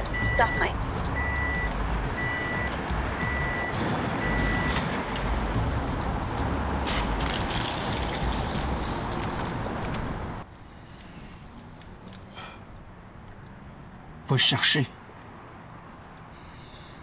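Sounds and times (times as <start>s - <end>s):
car warning chime beeping: 0.0s - 4.8s
low rumble of car: 0.0s - 17.0s.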